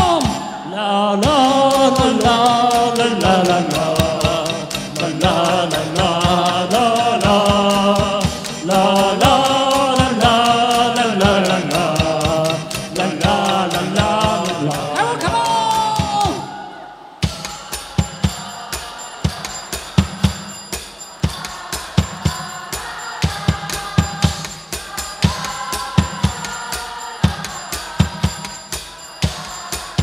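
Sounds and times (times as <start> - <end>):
otamatone melody: 1.2 - 16.4
ticking beat: 1.2 - 16.4, 17.2 - 30.0.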